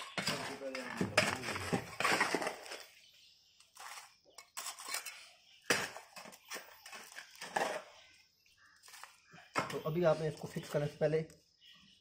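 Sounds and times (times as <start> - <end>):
mortar scraping: 0.0 - 3.0, 3.7 - 8.2
stone chips clinking: 3.8 - 7.8.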